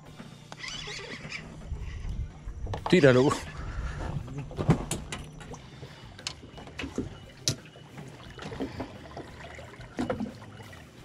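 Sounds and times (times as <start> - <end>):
water splashing against boat hull: 6.4 - 10.8.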